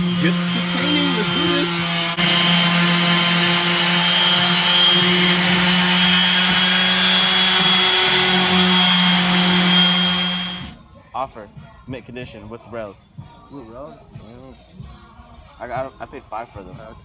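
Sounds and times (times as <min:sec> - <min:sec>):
small motor humming: 0:00.0 - 0:10.8.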